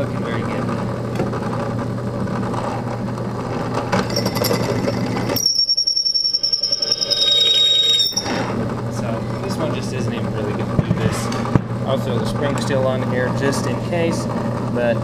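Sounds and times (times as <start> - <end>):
drill press drilling steel: 4.1 - 8.6
drill bit squealing in steel: 5.3 - 8.6.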